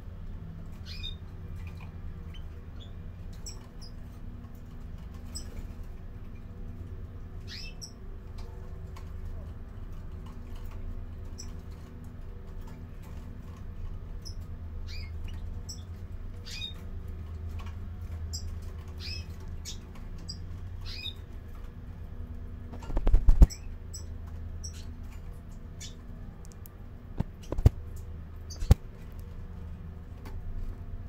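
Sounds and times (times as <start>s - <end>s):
steady low hum: 0.0s - 31.0s
finches chirping: 0.8s - 1.2s, 2.3s - 4.0s, 7.4s - 8.0s, 14.2s - 16.8s, 18.3s - 21.3s, 22.8s - 25.0s, 25.8s - 26.0s, 27.2s - 27.8s, 28.4s - 28.8s.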